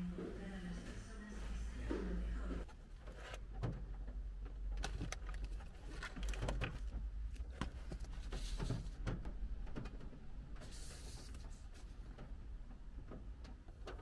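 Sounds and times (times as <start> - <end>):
paper crinkling and rustling: 4.7 - 9.0.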